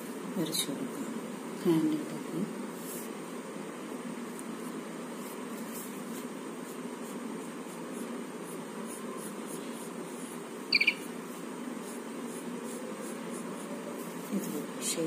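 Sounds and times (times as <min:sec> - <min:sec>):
low background hum: 0:00.0 - 0:15.0
high-pitched triple chirp: 0:10.7 - 0:11.0.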